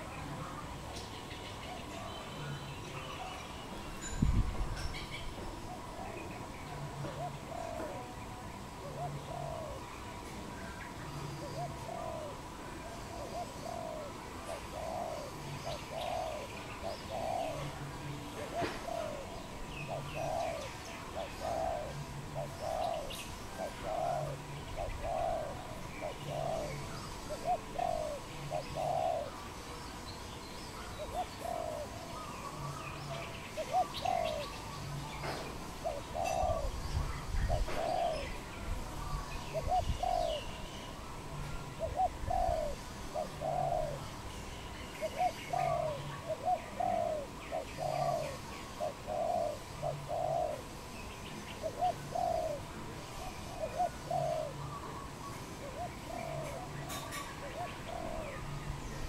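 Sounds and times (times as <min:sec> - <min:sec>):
small birds chirping: 0:00.0 - 0:59.0
dove cooing: 0:04.6 - 0:29.8, 0:30.7 - 0:59.0.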